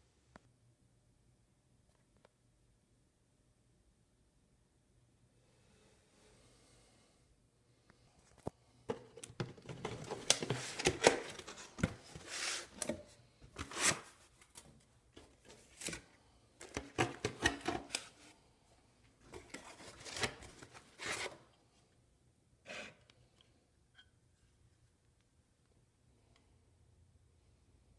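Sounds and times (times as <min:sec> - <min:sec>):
cardboard rustling and scraping: 0:08.9 - 0:14.5, 0:19.3 - 0:21.5.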